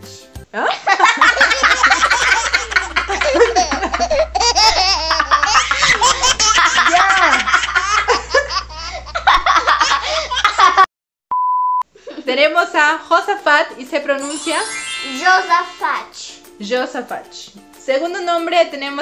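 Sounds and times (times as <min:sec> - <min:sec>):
woman and girl laughing: 0:00.8 - 0:10.9
short steady beep: 0:11.3 - 0:11.8.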